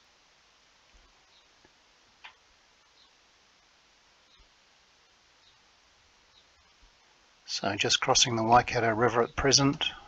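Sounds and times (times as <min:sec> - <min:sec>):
faint click: 0:01.6 - 0:02.4.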